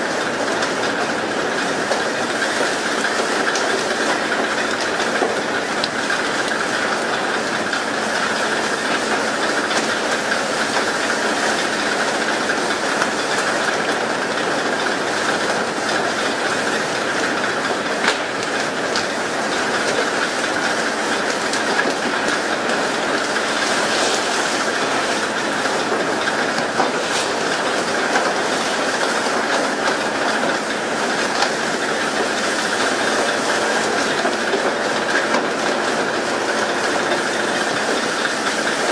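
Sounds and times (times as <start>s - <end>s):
boat machinery running: 0.0s - 38.9s
water spray rushing along hull: 1.7s - 38.9s.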